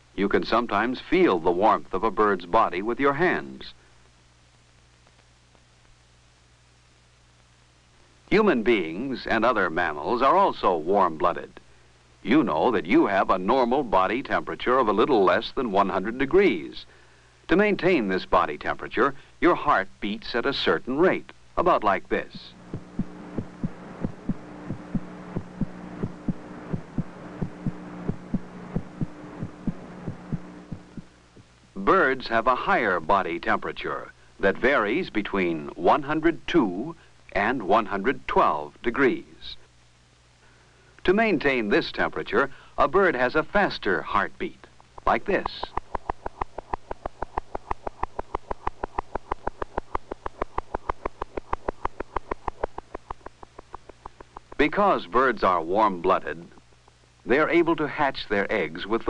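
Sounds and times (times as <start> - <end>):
steady low hum: 0.0 - 59.0
heartbeat thumps: 22.5 - 31.5
rapid heartbeat: 22.6 - 31.5, 45.7 - 54.6.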